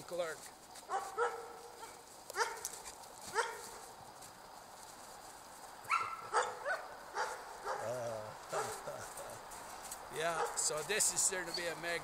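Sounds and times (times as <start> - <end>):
dog yipping: 0.9 - 2.7, 3.3 - 3.8, 5.9 - 8.9.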